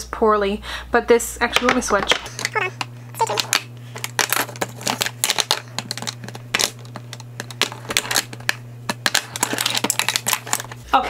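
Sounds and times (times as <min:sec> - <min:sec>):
plastic tubes clattering on acrylic tray: 0:03.3 - 0:10.8.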